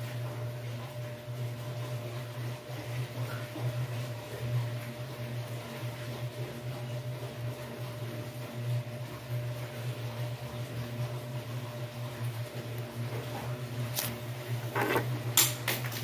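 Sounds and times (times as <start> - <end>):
motor humming: 11.7 - 15.3
thin steady whine: 13.1 - 15.1.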